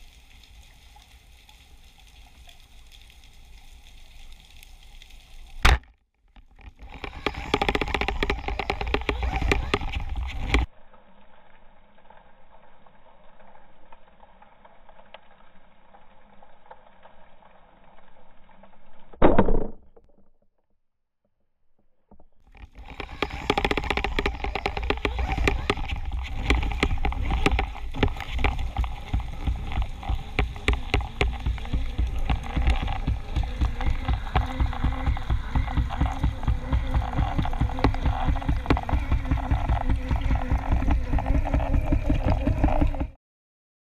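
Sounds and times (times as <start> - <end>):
underwater rushing water: 0.0 - 5.7, 6.8 - 10.7, 22.6 - 43.2.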